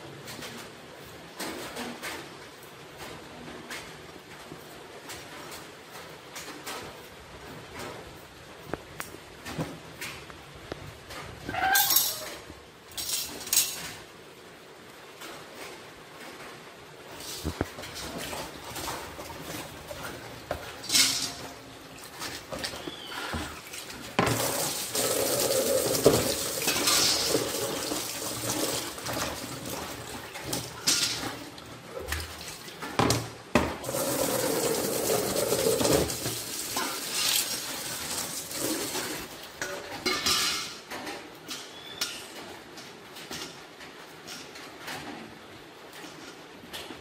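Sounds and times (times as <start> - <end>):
water sloshing and splashing: 17.2 - 39.6.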